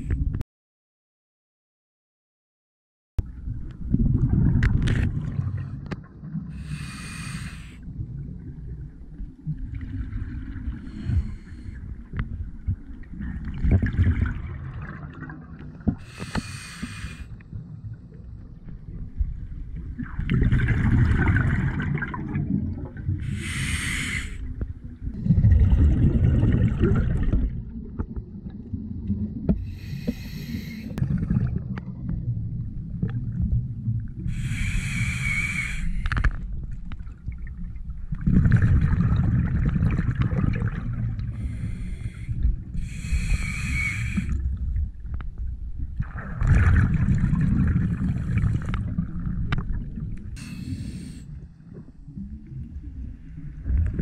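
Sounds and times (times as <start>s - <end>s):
regulator hissing inhales: 6.6s - 7.8s, 16.0s - 17.3s, 23.2s - 24.5s, 29.6s - 31.0s, 34.3s - 36.2s, 41.4s - 44.4s, 50.4s - 51.3s
bubbling exhales underwater: 19.9s - 24.3s, 25.1s - 28.1s, 31.0s - 32.3s, 38.1s - 41.8s, 46.0s - 50.6s.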